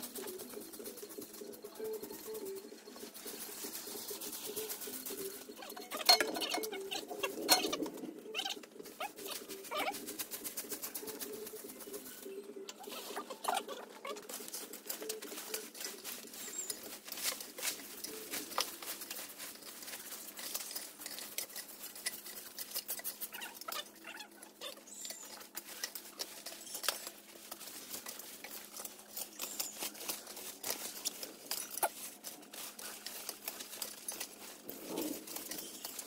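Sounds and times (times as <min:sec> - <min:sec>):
scraping rustles: 0:00.0 - 0:36.0.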